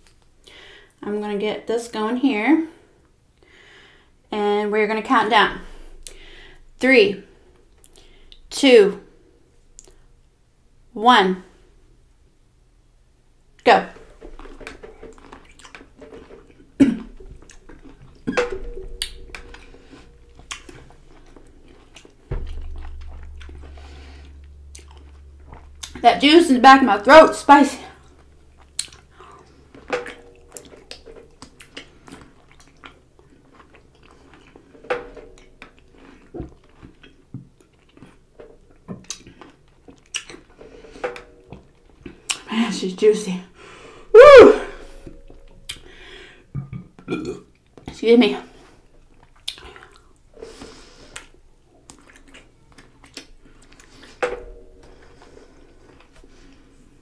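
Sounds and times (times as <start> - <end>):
person chewing crunchily: 28.5 - 29.4, 35.4 - 40.6
wet chewing of pickle: 28.6 - 29.1, 30.6 - 34.8, 35.4 - 40.6, 49.0 - 50.3, 51.1 - 53.9.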